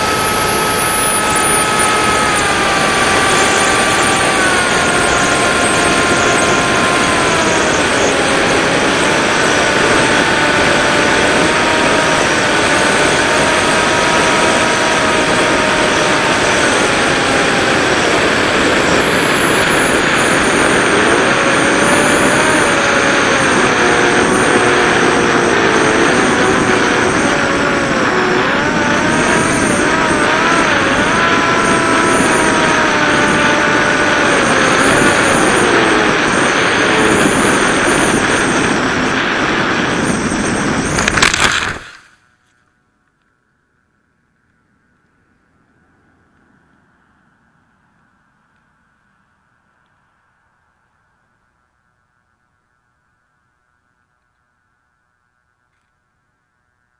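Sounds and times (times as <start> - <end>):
wind rush on microphone: 0.0 - 42.1
electric motor and propeller whining: 0.0 - 42.5.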